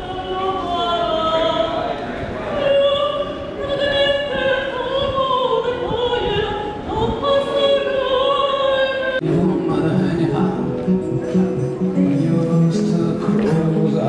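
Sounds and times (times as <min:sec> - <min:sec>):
woman singing operatically: 0:00.0 - 0:01.8, 0:02.5 - 0:09.7.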